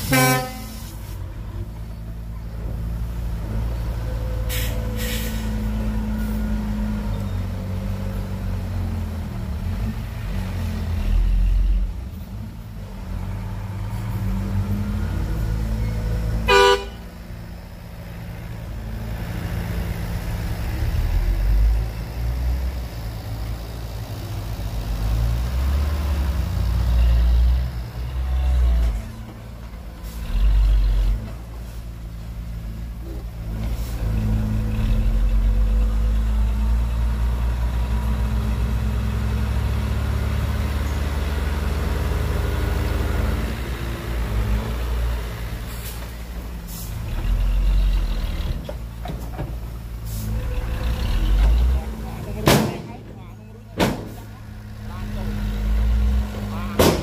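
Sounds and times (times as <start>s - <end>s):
short horn toot: 0.0s - 1.0s, 16.5s - 17.0s
heavy diesel engines rumbling: 0.0s - 57.0s.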